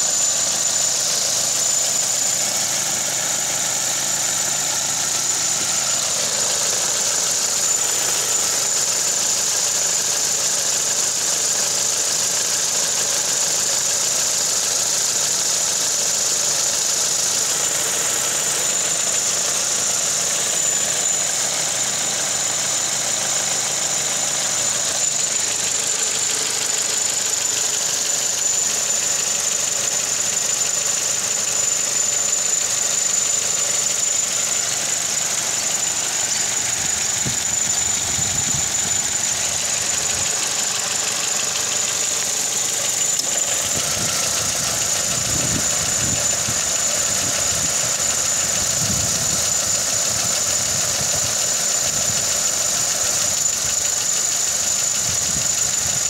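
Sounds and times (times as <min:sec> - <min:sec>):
car engine idling: 0:00.0 - 0:56.0
high-pitched whine: 0:00.0 - 0:56.0
low shuddering vibration: 0:36.5 - 0:40.4.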